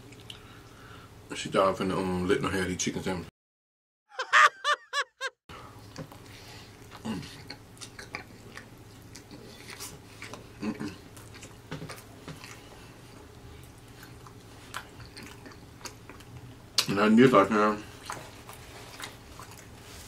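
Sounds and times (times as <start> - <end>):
person chewing crispy food: 5.8 - 16.9, 17.9 - 20.0.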